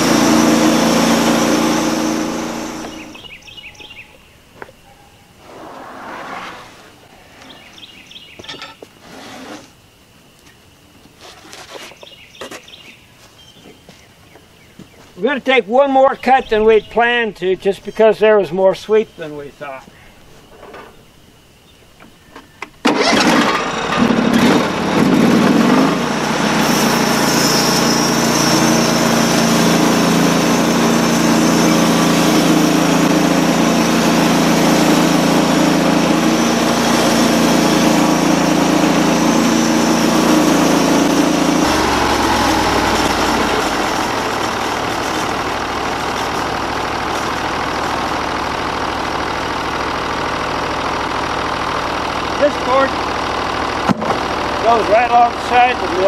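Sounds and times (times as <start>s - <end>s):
gasoline engine running: 0.0s - 4.1s, 22.8s - 56.0s.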